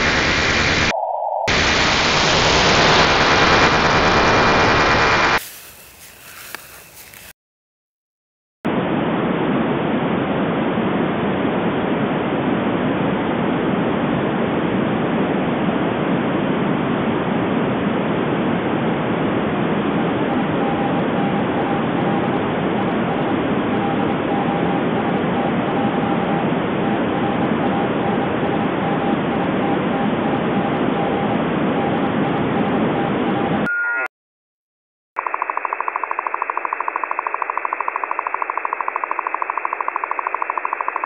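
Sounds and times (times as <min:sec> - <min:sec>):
radio static hiss: 0:00.0 - 0:00.9, 0:01.5 - 0:07.3, 0:35.2 - 0:41.0.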